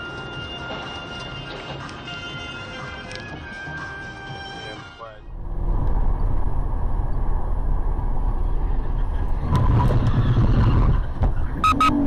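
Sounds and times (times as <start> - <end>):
car road and engine rumble: 5.2 - 12.0.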